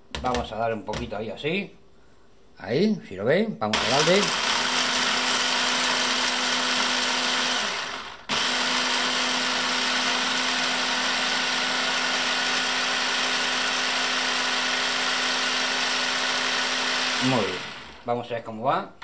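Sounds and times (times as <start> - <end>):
electric hand blender chopping: 3.7 - 18.1.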